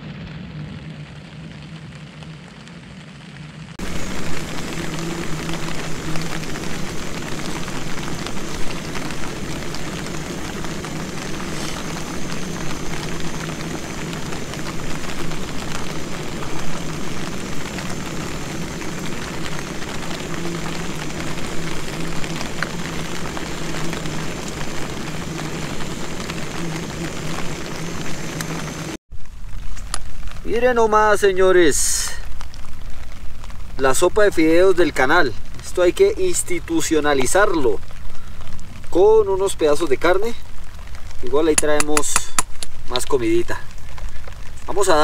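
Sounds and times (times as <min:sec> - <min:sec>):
low hum: 0:03.6 - 0:30.0.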